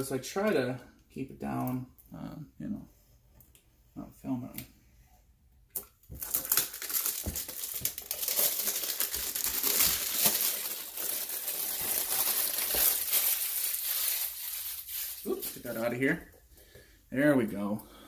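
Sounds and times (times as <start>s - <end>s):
plastic shrink wrap crinkling: 5.8s - 16.2s.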